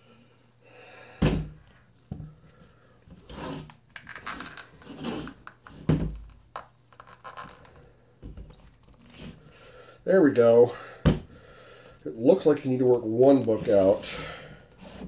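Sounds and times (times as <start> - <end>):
books scraping and rustling: 3.2 - 5.9, 13.3 - 15.0.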